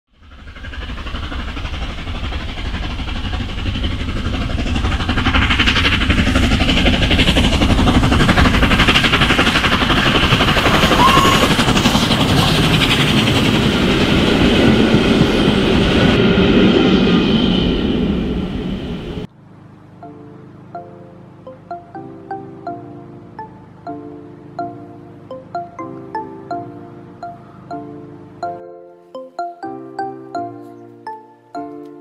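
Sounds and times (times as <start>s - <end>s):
wheels rattling over rails: 0.2s - 19.3s.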